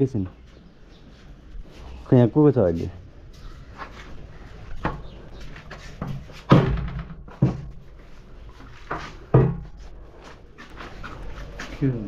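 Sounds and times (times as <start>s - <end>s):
banging on a door: 6.0s - 7.8s, 9.3s - 9.7s.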